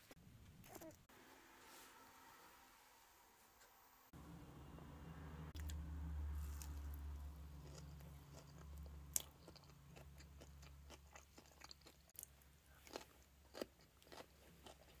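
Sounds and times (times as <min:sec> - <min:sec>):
chewing fried food: 0:06.4 - 0:15.0.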